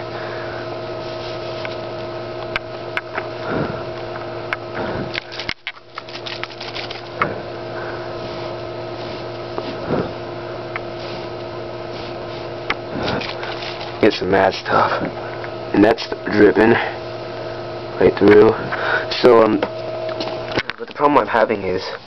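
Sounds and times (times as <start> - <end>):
steady electrical hum: 0.0 - 22.0
marker clicks and rustling: 5.1 - 7.1, 13.1 - 14.0.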